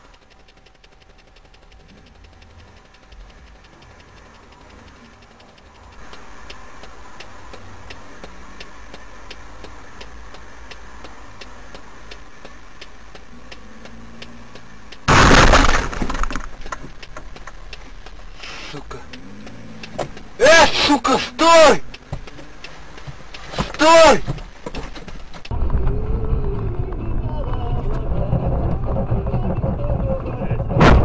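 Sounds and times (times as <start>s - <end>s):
car engine and road rumble: 0.0s - 31.0s
vehicle collision crash: 15.1s - 16.9s, 30.7s - 31.0s.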